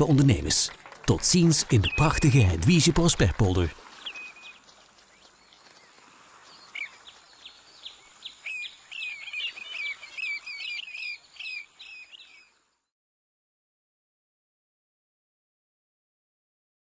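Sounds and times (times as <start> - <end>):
birds chirping and calling: 0.0 - 12.6.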